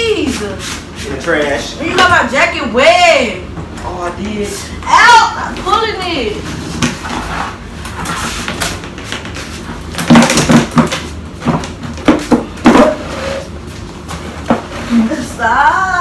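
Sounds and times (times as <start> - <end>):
plastic chair scraping on floor: 6.4 - 15.2.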